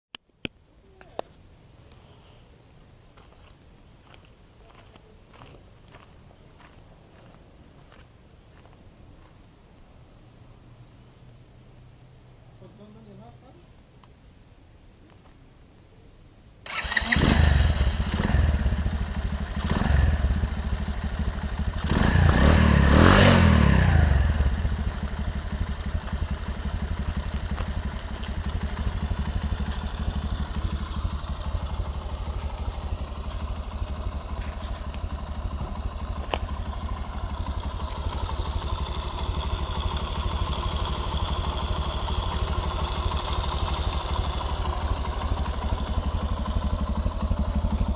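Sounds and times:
motorcycle engine revving and idling: 0:16.7 - 0:47.9.

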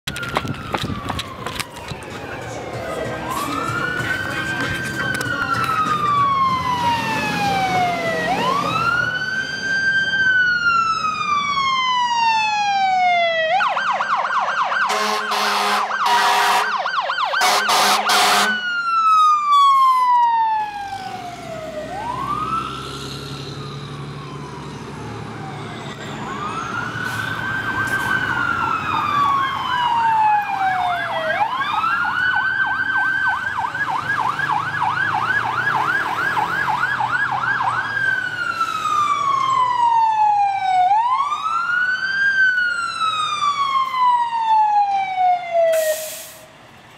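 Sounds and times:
fire engine sirens: 0:00.0 - 0:46.9
horn blasts: 0:14.9 - 0:16.8, 0:17.4 - 0:18.6.

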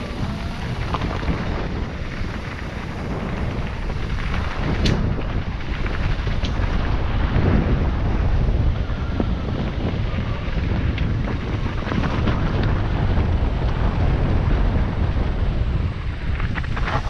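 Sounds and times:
bike rattling over rocks: 0:00.0 - 0:17.0
tyres rumbling on rocky trail: 0:00.0 - 0:17.0
wind buffeting microphone: 0:00.0 - 0:17.0.

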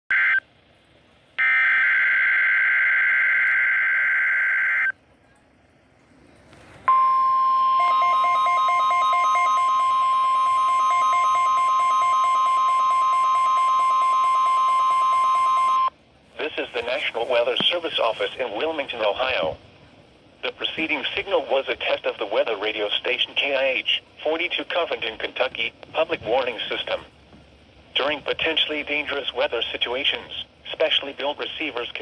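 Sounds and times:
steady warning alarm tone: 0:01.4 - 0:05.0, 0:06.9 - 0:16.0.

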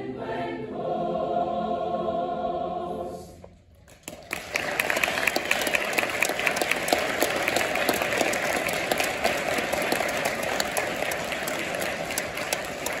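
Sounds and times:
audience applauding: 0:03.9 - 0:13.0.

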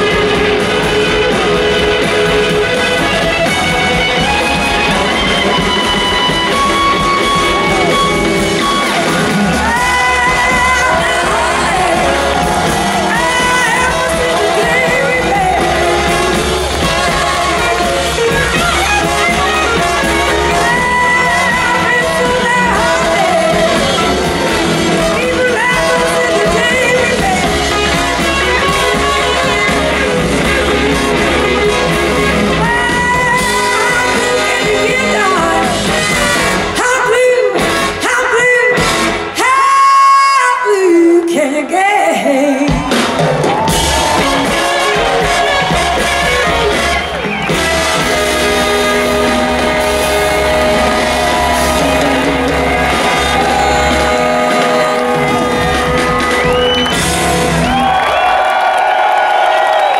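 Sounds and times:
electric guitars: 0:00.0 - 0:39.4, 0:42.7 - 0:59.9
bass guitar: 0:00.0 - 0:40.0, 0:42.7 - 0:59.9
drums: 0:00.0 - 0:59.9
woman singing: 0:09.5 - 0:30.0, 0:32.4 - 0:42.9, 0:48.9 - 0:55.7.

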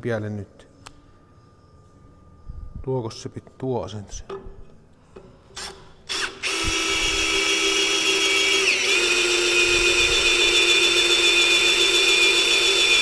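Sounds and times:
drill motor whine: 0:05.6 - 0:13.0.

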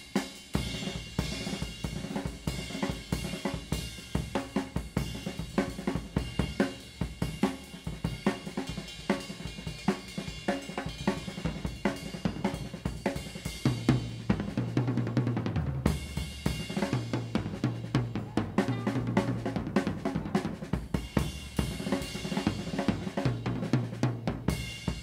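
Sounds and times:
hi-hat and cymbals: 0:00.0 - 0:14.4
drum strokes: 0:15.4 - 0:23.8.

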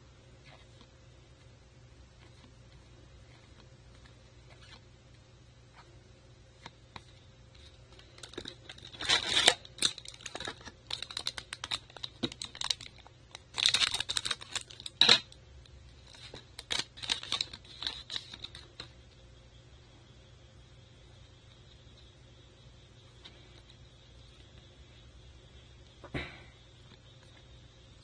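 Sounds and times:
foil wrapper crinkling: 0:08.0 - 0:15.3, 0:16.0 - 0:18.9.

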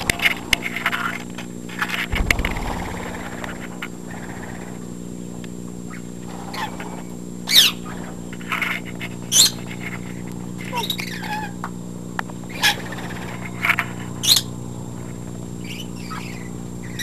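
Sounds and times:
steady low hum: 0:00.0 - 0:08.6
parrots calling: 0:10.7 - 0:11.6.

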